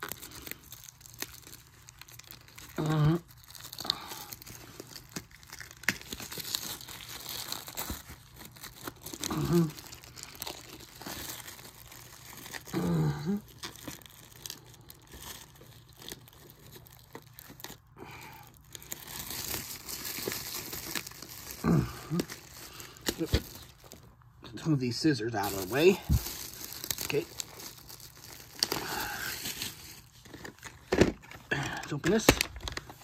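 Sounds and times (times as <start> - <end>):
packaging crinkling and tearing: 0.0 - 33.0
person vocal sounds: 2.6 - 4.4, 9.2 - 10.4, 12.6 - 13.6, 21.4 - 23.6, 24.5 - 27.5, 28.6 - 29.5, 31.4 - 32.4.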